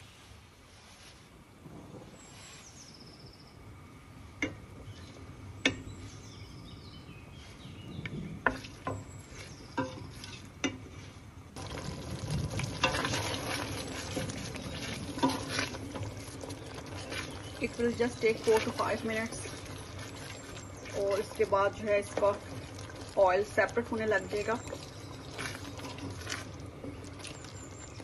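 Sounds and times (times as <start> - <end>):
steady sizzle: 0.6 - 28.0
wooden spatula knocking a pot: 8.4 - 9.1, 9.7 - 10.8
wooden spatula stirring: 8.4 - 28.0.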